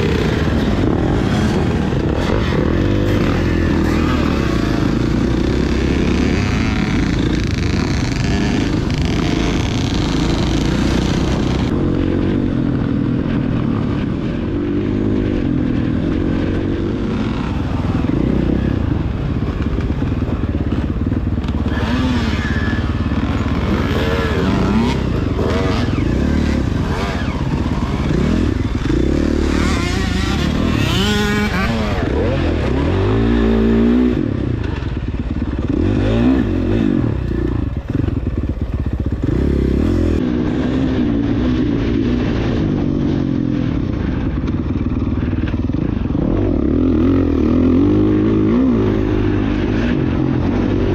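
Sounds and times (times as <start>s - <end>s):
dirt bike engine revving: 0.0s - 50.9s.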